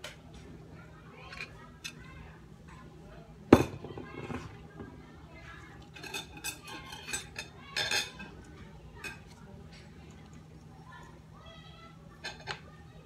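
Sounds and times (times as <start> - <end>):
spoon clinking on dishes: 5.8 - 10.2.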